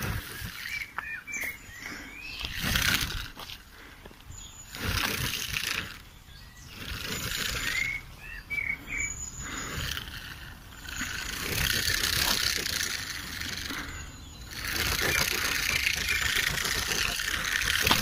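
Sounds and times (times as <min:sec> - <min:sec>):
porcupine rattling quills: 0:00.0 - 0:03.9, 0:04.6 - 0:08.1, 0:08.8 - 0:18.0
bird chirps: 0:00.0 - 0:18.0.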